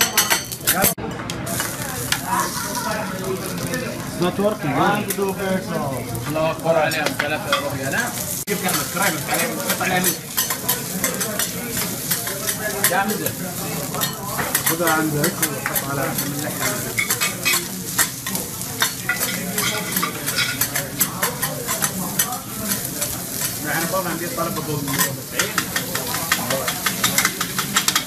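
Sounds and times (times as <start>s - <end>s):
food sizzling: 0.0s - 28.0s
metal spatulas scraping on griddle: 7.0s - 28.0s.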